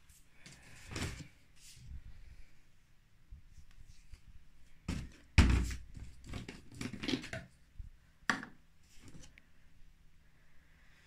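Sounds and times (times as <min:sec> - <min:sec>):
plastic containers knocking and clattering: 0:04.9 - 0:07.6, 0:08.3 - 0:09.2.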